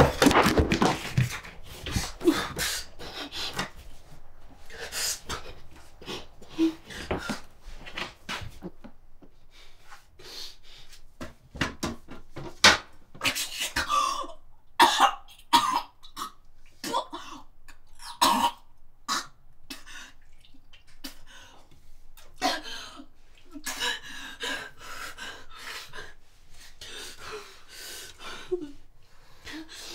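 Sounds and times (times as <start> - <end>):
woman coughing and retching: 13.3 - 19.9.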